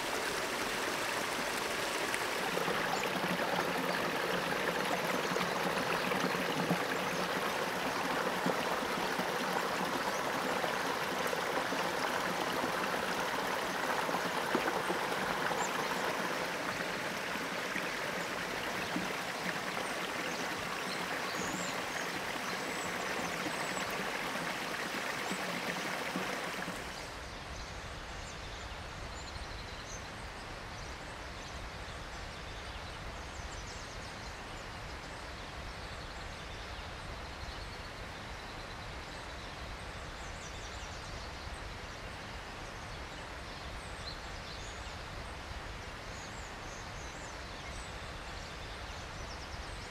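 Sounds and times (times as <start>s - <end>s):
stream rushing: 0.0s - 27.1s.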